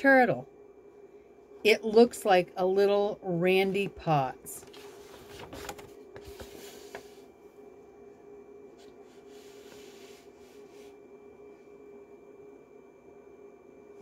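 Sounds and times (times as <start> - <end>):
faint hum: 0.0 - 14.0
paper pages rustling: 4.6 - 7.2.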